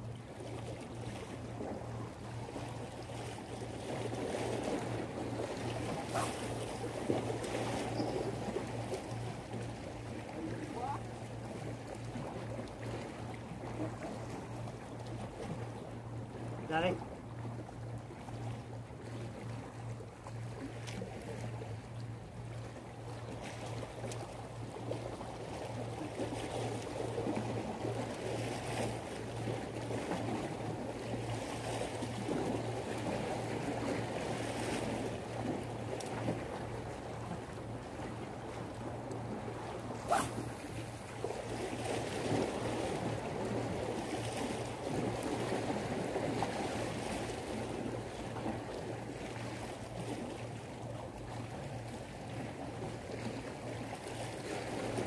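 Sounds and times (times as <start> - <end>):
low steady hum: 0.0 - 55.0
fishing rod cast swish: 6.0 - 6.8, 40.0 - 40.9.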